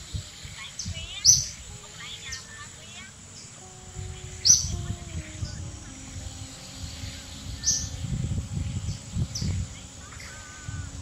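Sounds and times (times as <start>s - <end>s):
bird chirps: 0.1s - 11.0s
low rumble: 3.6s - 11.0s.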